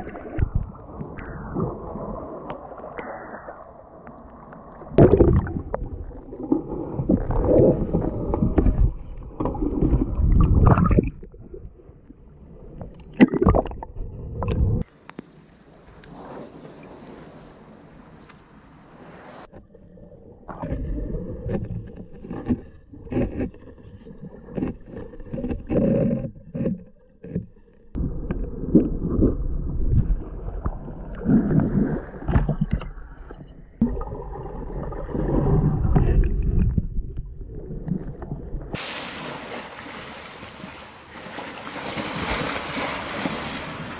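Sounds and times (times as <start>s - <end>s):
muffled water sloshing: 0.0s - 26.0s, 26.6s - 43.9s
hiss of splashing water: 38.8s - 43.9s.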